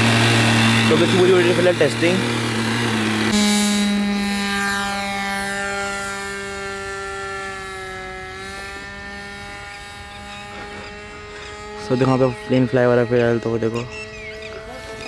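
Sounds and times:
model airplane engine buzzing: 0:00.0 - 0:15.0.

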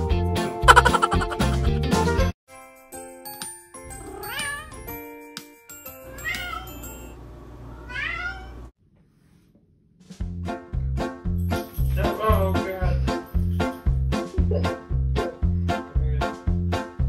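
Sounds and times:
cat meowing: 0:04.2 - 0:04.8, 0:06.1 - 0:06.8, 0:07.7 - 0:08.6.

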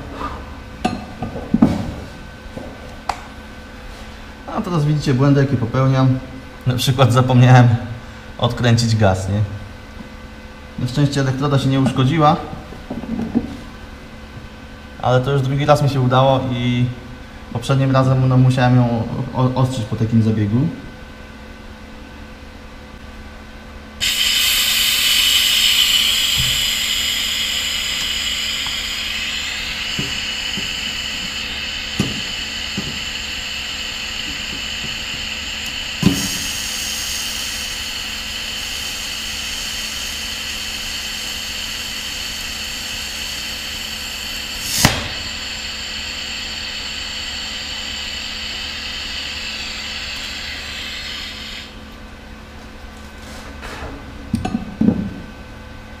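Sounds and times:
welding arc hissing and whining: 0:24.0 - 0:52.0.

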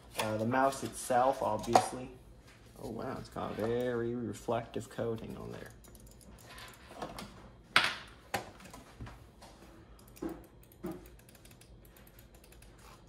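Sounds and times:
objects clicking and knocking on desk: 0:10.1 - 0:11.2.

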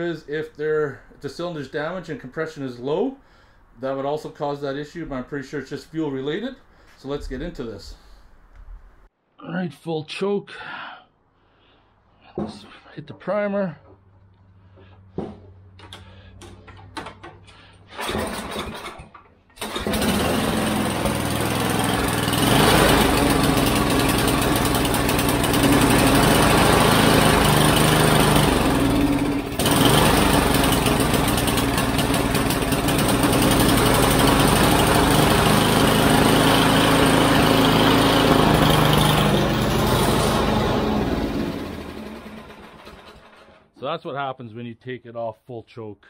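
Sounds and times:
snowblower engine running: 0:17.9 - 0:43.6.

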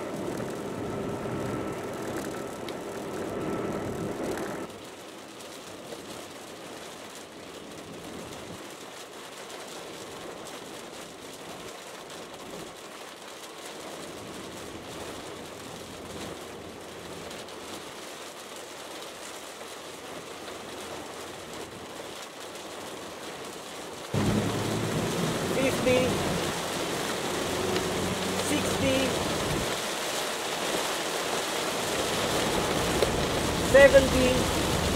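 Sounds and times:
road noise inside car: 0:00.0 - 0:09.6, 0:10.2 - 0:34.9
rain hissing: 0:00.0 - 0:34.9.

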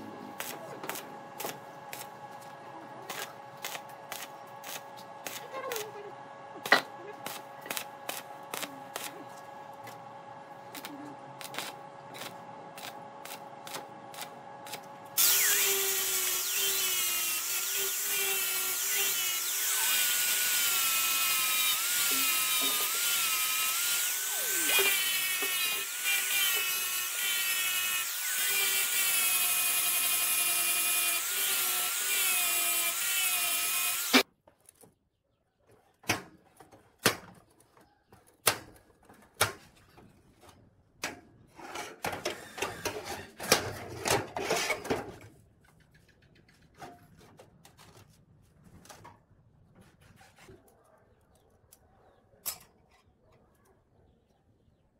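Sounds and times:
arc welding crackling: 0:03.1 - 0:06.0, 0:06.6 - 0:10.0, 0:10.6 - 0:34.2
angle grinder grinding steel: 0:15.2 - 0:34.2.

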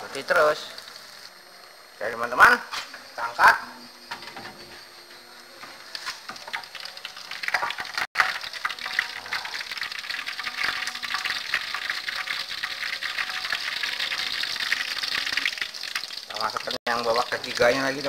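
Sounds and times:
food sizzling in hot oil: 0:00.0 - 0:01.4, 0:05.4 - 0:18.0.

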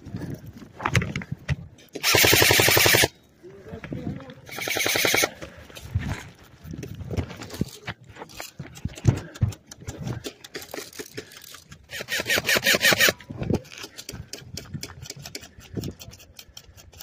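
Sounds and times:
rapid rattling burst: 0:02.0 - 0:03.1, 0:04.5 - 0:05.3, 0:11.9 - 0:13.2
airsoft rifle clicks and rattles: 0:07.4 - 0:17.0.

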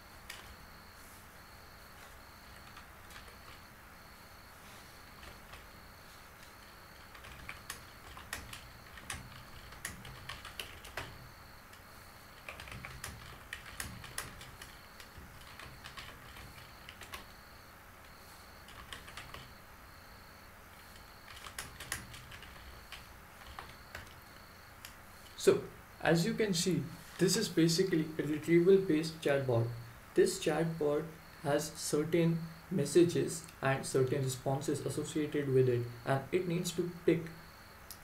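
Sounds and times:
typing on computer keyboard: 0:00.3 - 0:00.6, 0:02.5 - 0:03.7, 0:05.1 - 0:05.8, 0:06.4 - 0:11.3, 0:12.3 - 0:17.4, 0:18.6 - 0:19.6, 0:20.8 - 0:24.2.

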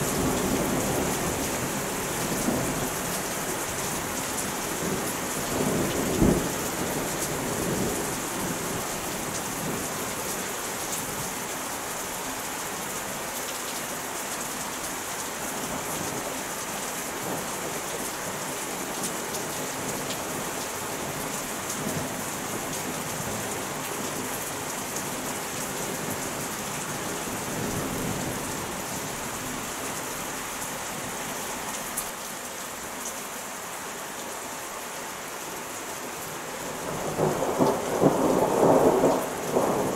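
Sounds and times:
steady rain falling: 0:00.0 - 0:39.9
thunder rumbling: 0:36.8 - 0:39.9.

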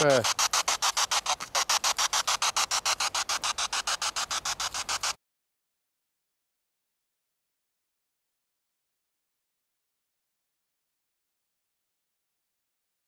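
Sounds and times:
pulsing radio static: 0:00.0 - 0:05.2.

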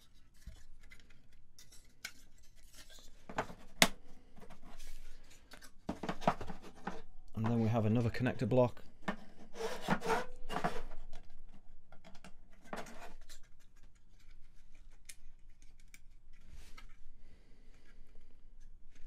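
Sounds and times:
light clicks and scrapes of plastic parts: 0:00.0 - 0:19.0.

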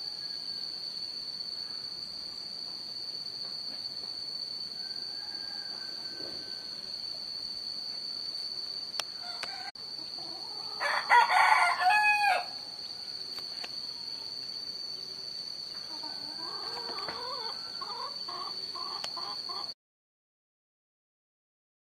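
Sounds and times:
rooster crowing: 0:00.0 - 0:00.7, 0:04.8 - 0:07.1, 0:09.2 - 0:12.8, 0:15.9 - 0:19.7.

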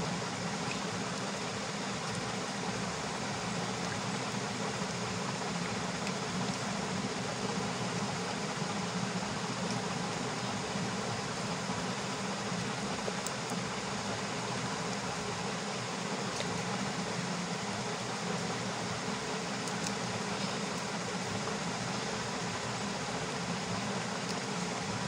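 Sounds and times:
fan humming: 0:00.0 - 0:25.0.

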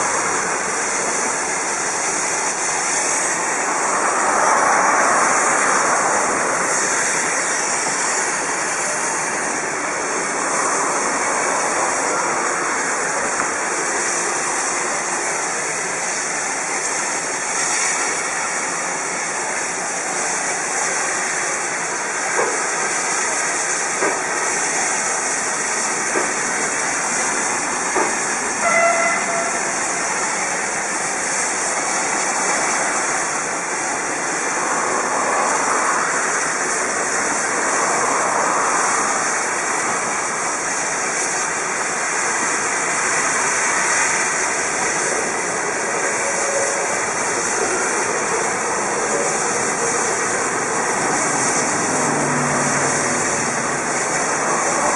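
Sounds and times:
hiss of escaping steam: 0:00.0 - 0:54.9
steam locomotive moving slowly: 0:00.0 - 0:54.9
brief high tone: 0:28.6 - 0:29.7.

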